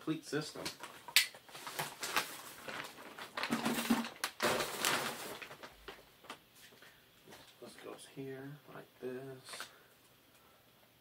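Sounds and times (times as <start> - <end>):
plastic packaging rustling: 0.5 - 7.7.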